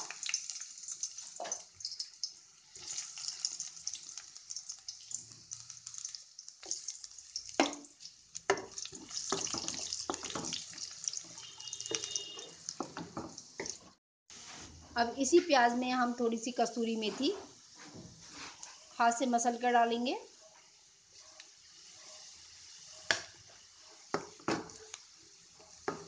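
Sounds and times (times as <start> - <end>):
onions sizzling in hot oil: 0.0 - 14.0, 21.4 - 26.0
spatula stirring against pan: 2.7 - 14.9, 17.0 - 19.0, 21.1 - 26.0.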